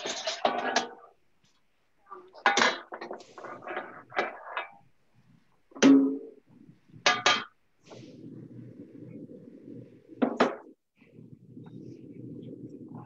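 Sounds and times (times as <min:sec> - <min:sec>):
metal cookware clanking: 0:00.0 - 0:01.1, 0:02.4 - 0:03.3.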